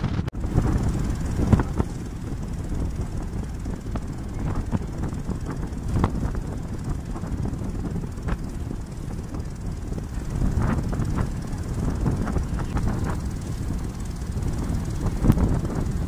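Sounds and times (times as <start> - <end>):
ferry engine rumble: 0.0 - 16.0
water rushing along hull: 0.0 - 16.0.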